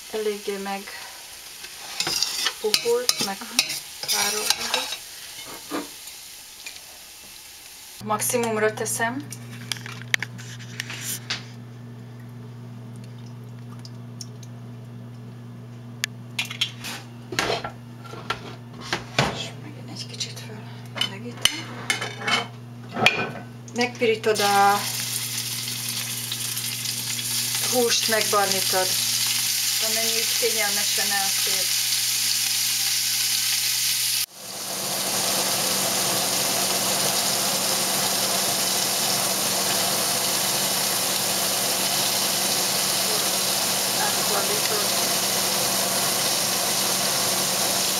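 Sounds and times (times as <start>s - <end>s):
meat sizzling in hot oil: 0.0s - 8.0s, 24.4s - 47.9s.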